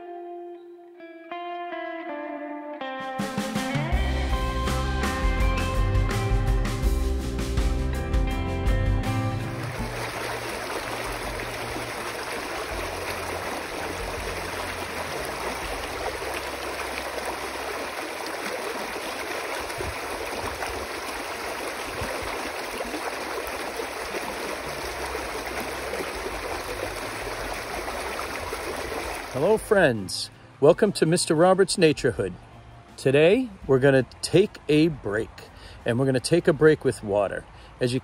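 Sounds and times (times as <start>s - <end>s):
stream rushing over rocks: 9.4s - 29.7s.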